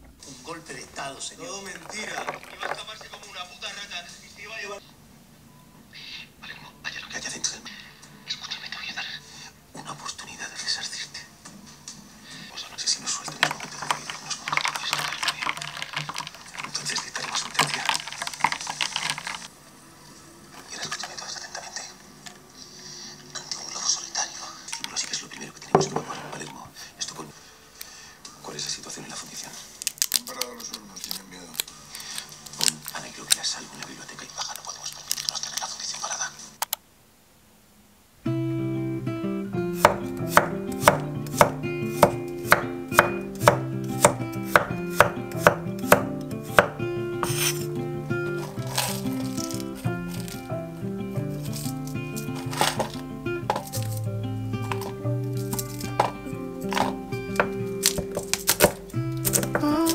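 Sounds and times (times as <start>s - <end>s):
ice cubes clinking in a glass: 1.8s - 3.0s, 13.5s - 19.5s
soft guitar music: 38.2s - 59.9s
knife hitting cutting board: 39.8s - 47.6s, 55.5s - 59.6s.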